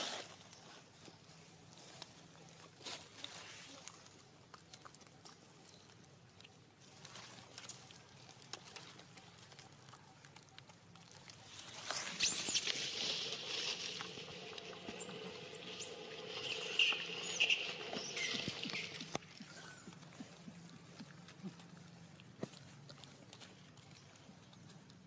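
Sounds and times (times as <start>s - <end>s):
monkeys squealing: 12.0s - 19.2s.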